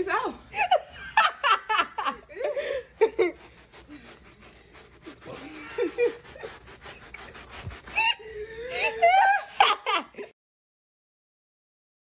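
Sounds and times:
laughter: 0.5s - 3.5s, 5.5s - 6.6s, 8.6s - 10.4s
hand brush scrubbing carpet: 1.4s - 9.3s.

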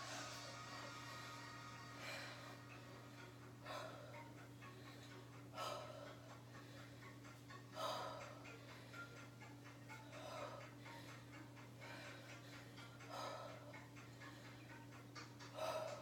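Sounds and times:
low hum: 0.0s - 16.0s
woman breathing hard: 0.0s - 16.0s.

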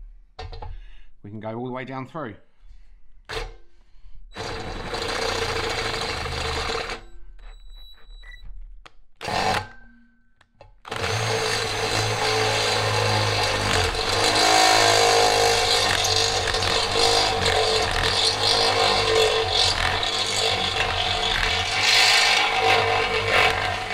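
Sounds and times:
cordless drill drilling metal: 4.4s - 7.1s, 9.2s - 9.7s, 10.9s - 23.9s.

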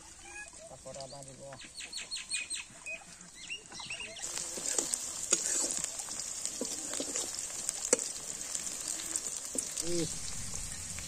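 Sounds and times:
birds chirping: 0.4s - 5.0s
food sizzling in oil: 3.8s - 11.0s
metal spatula scraping wok: 4.2s - 9.7s.

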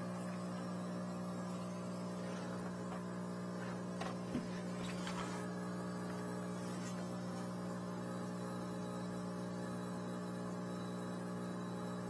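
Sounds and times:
electric machine hum: 0.0s - 12.0s.

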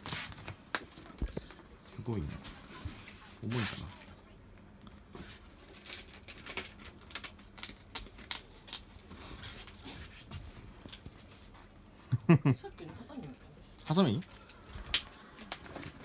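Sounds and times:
sharp plastic crinkles: 5.3s - 9.9s
plastic wrapping crackling: 5.4s - 9.9s.

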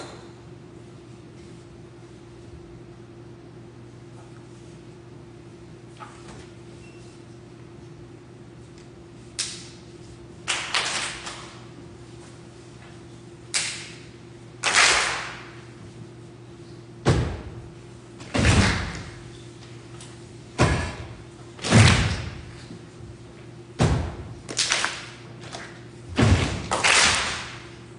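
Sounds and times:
reverberant thuds and booms: 20.6s - 22.5s, 23.8s - 24.4s, 26.1s - 26.7s.

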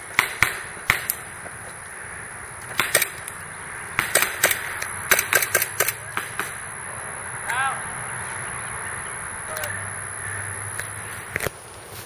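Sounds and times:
airsoft pistols firing: 0.1s - 1.2s, 2.7s - 3.4s, 4.0s - 6.6s.

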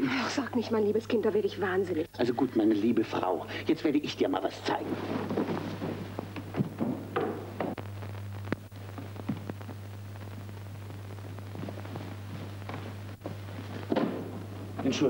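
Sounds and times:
steady low hum: 0.0s - 15.0s
footsteps: 4.5s - 7.8s, 8.5s - 9.8s, 11.2s - 15.0s
footsteps going down stairs: 4.6s - 7.8s, 11.6s - 14.9s
soft knocks: 5.5s - 7.8s
faint ticks: 8.4s - 9.8s.

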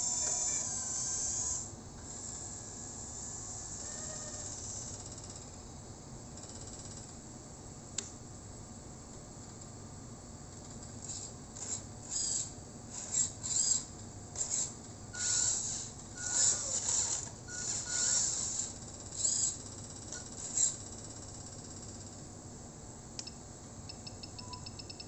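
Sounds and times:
small electric motors whirring: 0.0s - 5.1s, 11.0s - 20.8s.

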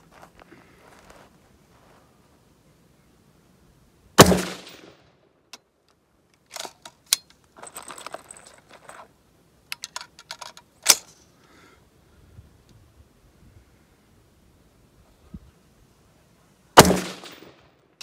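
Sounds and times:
rifle shot: 4.2s - 5.0s, 16.8s - 17.7s
handling clicks and rustling: 5.5s - 11.3s.

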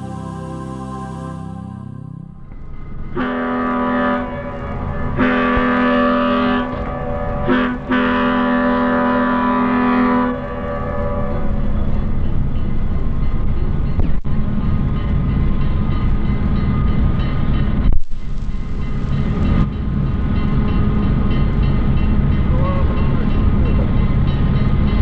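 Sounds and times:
locomotive engine rumble: 0.0s - 25.0s
train air horn: 3.1s - 11.8s.

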